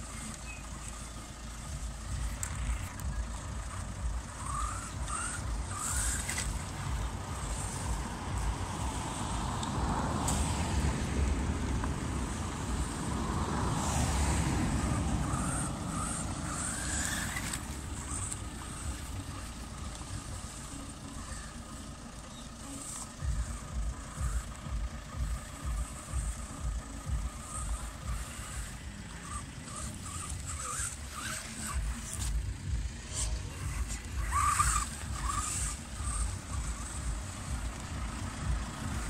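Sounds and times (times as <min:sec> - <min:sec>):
rc truck motor whining: 0:00.0 - 0:39.0
tyres on grass and dirt: 0:00.0 - 0:39.0.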